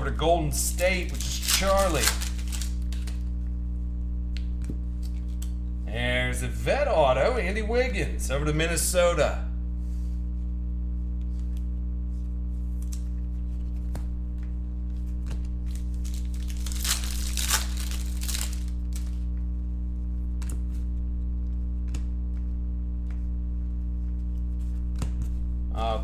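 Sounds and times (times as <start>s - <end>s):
low electrical hum: 0.0s - 26.0s
cards clicking: 0.7s - 3.2s, 15.2s - 19.2s
foil wrapper tearing and crinkling: 0.7s - 3.3s, 15.3s - 19.3s.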